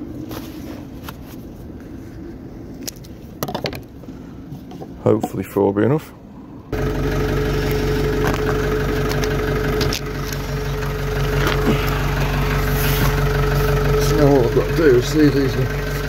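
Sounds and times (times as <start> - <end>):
engine idling: 6.2 - 16.0.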